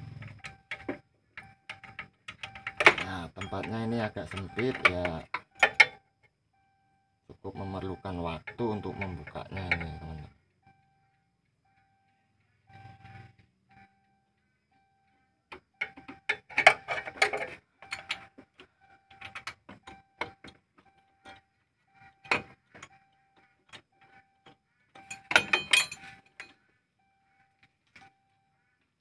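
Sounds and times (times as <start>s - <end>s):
faint steady tone: 0.0s - 29.0s
metal tool clinks: 25.0s - 26.6s.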